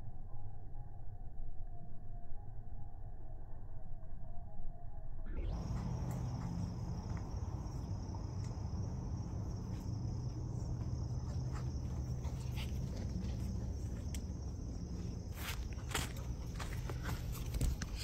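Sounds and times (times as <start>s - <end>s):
insect chorus: 1.7s - 18.0s
low steady rumble: 5.4s - 18.0s.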